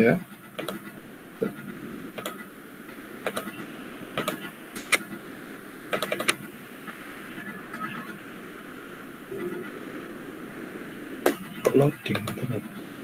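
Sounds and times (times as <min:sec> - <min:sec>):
sharp clicks: 0:00.6 - 0:00.9, 0:02.2 - 0:02.4, 0:03.2 - 0:03.6, 0:04.2 - 0:05.1, 0:05.9 - 0:06.4.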